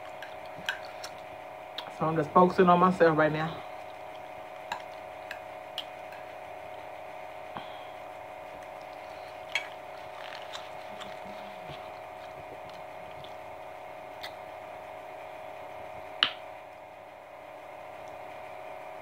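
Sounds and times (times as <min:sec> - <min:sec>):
person chewing food: 0:00.0 - 0:01.9, 0:03.7 - 0:14.6
steady hum: 0:00.0 - 0:19.0.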